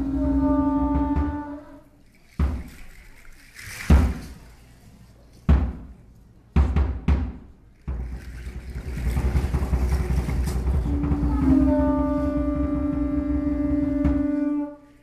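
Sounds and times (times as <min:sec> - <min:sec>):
large drum deep beats: 0:06.6 - 0:14.4.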